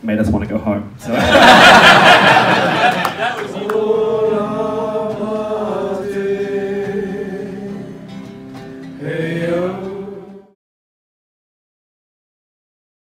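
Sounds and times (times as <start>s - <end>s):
group of people singing: 1.2s - 10.6s.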